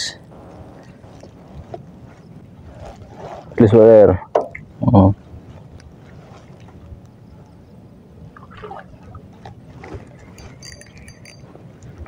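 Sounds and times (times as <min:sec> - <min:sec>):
river water trickling and lapping: 0:08.2 - 0:12.0.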